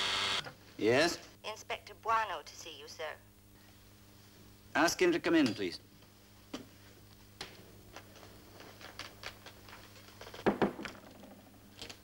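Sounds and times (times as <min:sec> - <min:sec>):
steady low hum: 0:00.0 - 0:10.4.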